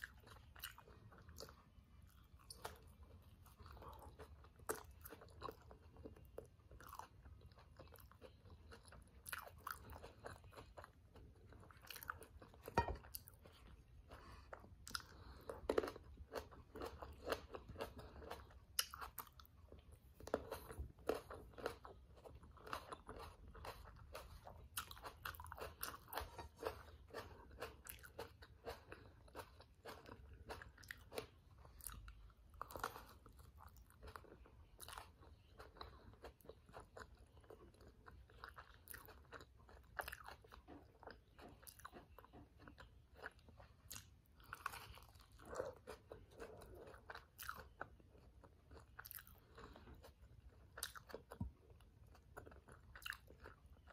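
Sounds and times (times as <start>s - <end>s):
chewing and biting crunchy wrap: 0.0s - 53.9s.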